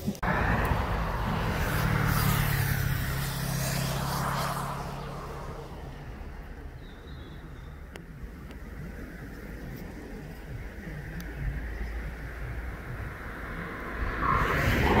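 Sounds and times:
car passing by: 0:00.2 - 0:07.9, 0:08.8 - 0:15.0.

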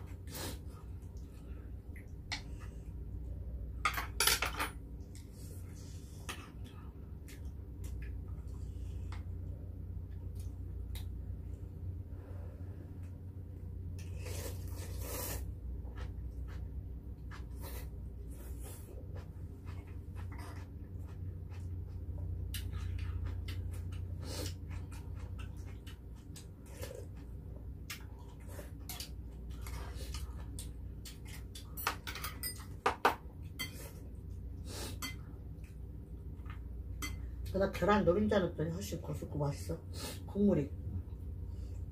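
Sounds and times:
low steady hum: 0:00.0 - 0:41.9
chewing and gnawing meat: 0:14.0 - 0:31.8
utensils clinking on bowls: 0:31.6 - 0:33.0.

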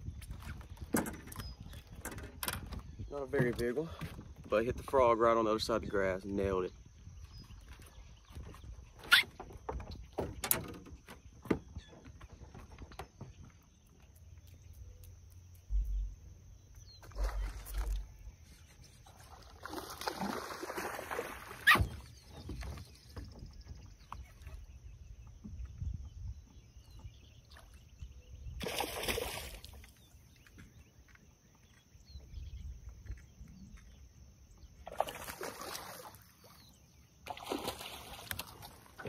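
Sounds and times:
fish splashing in water: 0:19.3 - 0:22.0, 0:34.9 - 0:36.6, 0:37.3 - 0:39.0.

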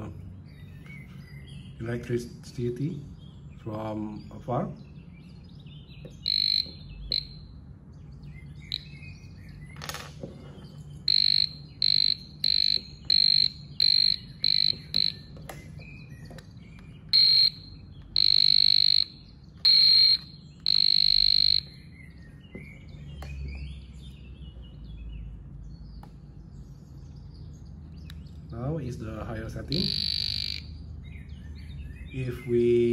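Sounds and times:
voltage tester pen beeping: 0:06.1 - 0:07.5, 0:08.7 - 0:08.9, 0:11.1 - 0:15.5, 0:17.1 - 0:21.7, 0:29.7 - 0:30.7.

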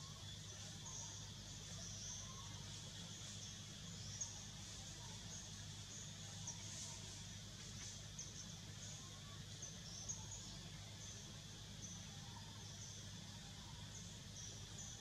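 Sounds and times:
high bird or insect chirps: 0:00.0 - 0:15.0
steady hiss: 0:00.0 - 0:15.0.

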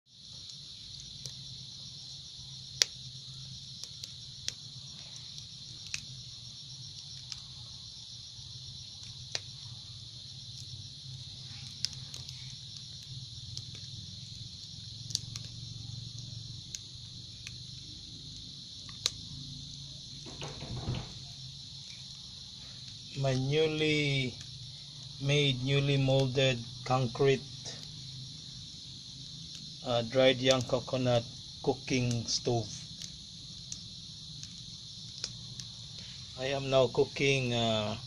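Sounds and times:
crickets chirping: 0:00.0 - 0:38.0
fire crackling and popping: 0:00.1 - 0:38.0.

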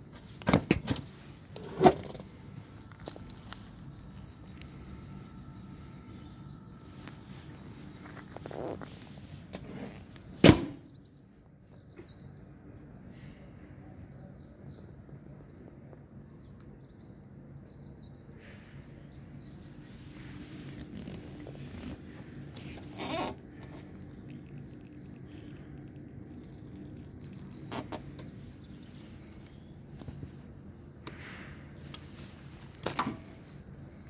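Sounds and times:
small birds chirping: 0:01.0 - 0:34.0
motorcycle seat thunking shut: 0:10.4 - 0:10.8.

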